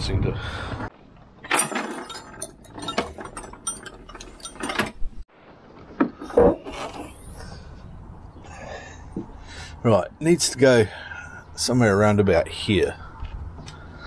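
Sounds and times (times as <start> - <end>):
metal tools clinking: 1.5 - 5.2.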